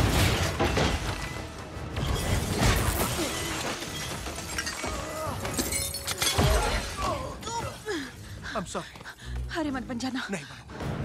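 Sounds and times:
action film music score: 0:00.0 - 0:11.0
glass shattering: 0:02.0 - 0:07.0.

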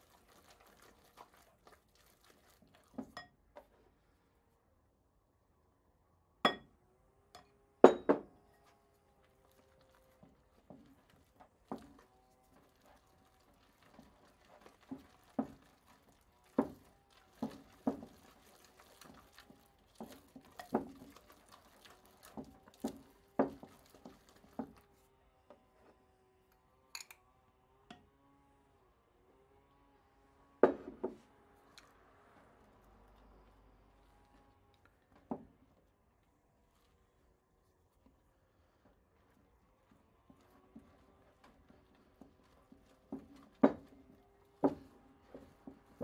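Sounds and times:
wet dripping batter: 0:00.0 - 0:03.9, 0:08.1 - 0:25.1, 0:38.1 - 0:46.0.

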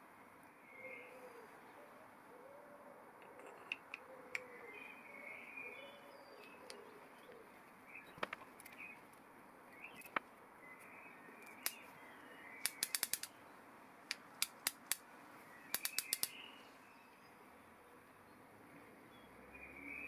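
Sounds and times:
ratchet clicking: 0:12.6 - 0:13.3, 0:15.8 - 0:16.3.

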